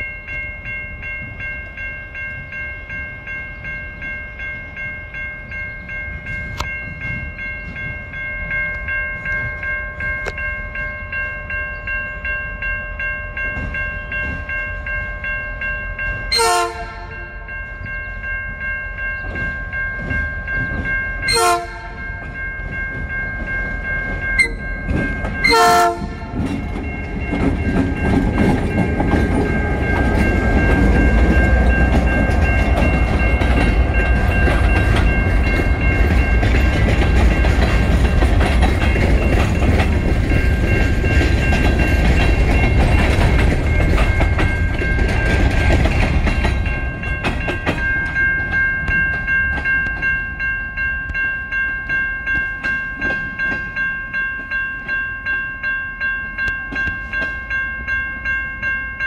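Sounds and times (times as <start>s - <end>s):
locomotive bell ringing: 0.0s - 59.0s
train wheels rumbling and clacking: 13.3s - 55.4s
train horn blasts: 16.3s - 17.5s, 21.3s - 22.0s, 25.4s - 26.5s.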